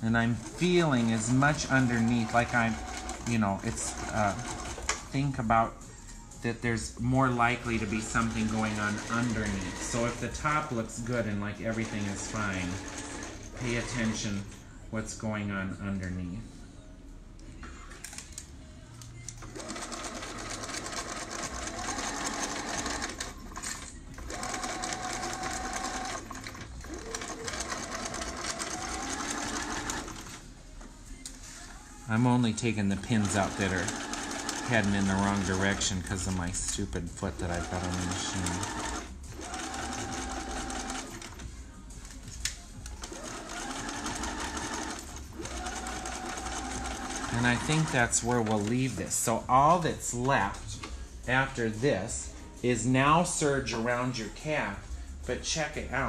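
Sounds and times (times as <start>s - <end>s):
sewing machine stitching: 0.1s - 5.3s, 7.3s - 14.6s, 19.4s - 30.4s, 32.4s - 41.5s, 42.9s - 49.0s.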